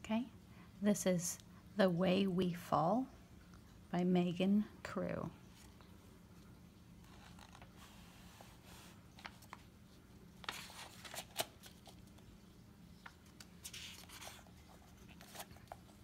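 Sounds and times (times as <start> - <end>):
book pages rustling: 7.0 - 16.0.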